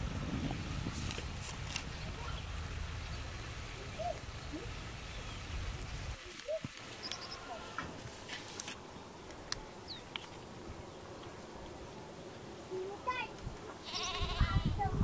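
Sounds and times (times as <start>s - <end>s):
bird chirps: 6.5s - 7.5s.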